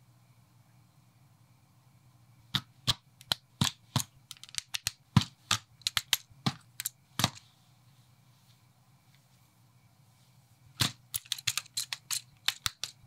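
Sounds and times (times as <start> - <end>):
plastic blocks clicking together: 3.2 - 7.4, 10.8 - 13.0.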